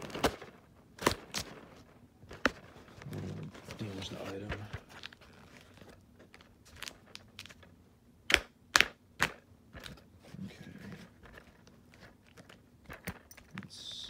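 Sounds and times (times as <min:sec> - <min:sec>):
cardboard snapping: 0:00.0 - 0:02.7
cardboard clicks and rustles: 0:00.0 - 0:07.7, 0:09.2 - 0:13.7.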